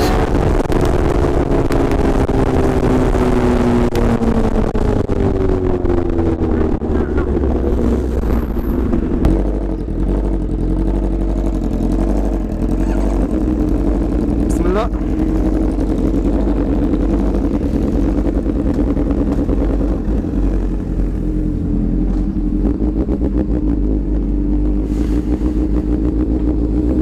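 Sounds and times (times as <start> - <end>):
wind rushing over microphone: 0.0 - 9.9
motorcycle engine: 0.0 - 27.0.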